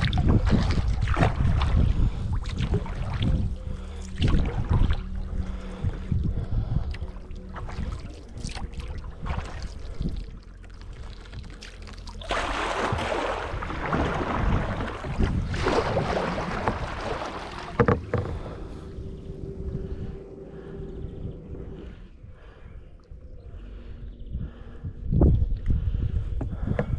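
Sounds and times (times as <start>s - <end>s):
paddle splashing and dripping: 0.0s - 19.3s
wind rumble on microphone: 0.0s - 26.9s.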